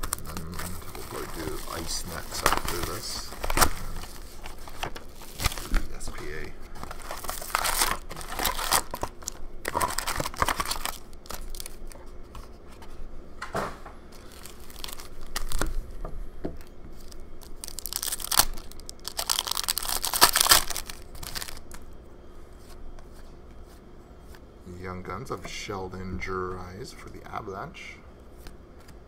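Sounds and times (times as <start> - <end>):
foil wrappers tearing and crinkling: 0.0 - 12.0, 14.2 - 15.8, 16.6 - 21.8.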